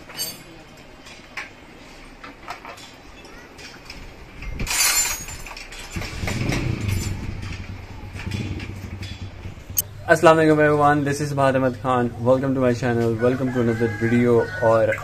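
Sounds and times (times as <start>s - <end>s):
small engine running: 6.0s - 9.9s.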